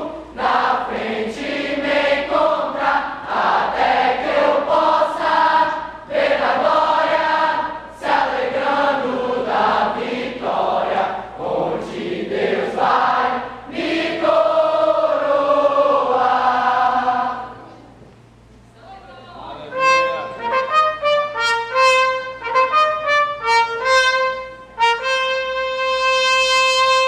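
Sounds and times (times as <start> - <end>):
youth choir singing: 0.0 - 17.9.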